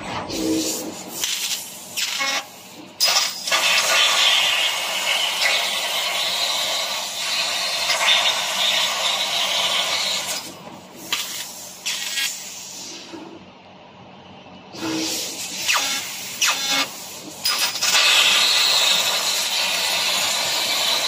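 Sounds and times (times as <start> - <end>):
laser cutter gas hiss: 0.3 - 13.2, 14.8 - 21.0.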